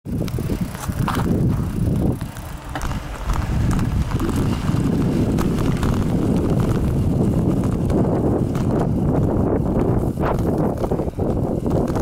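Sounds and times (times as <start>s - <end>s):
handling and wind rumble: 0.0s - 12.0s.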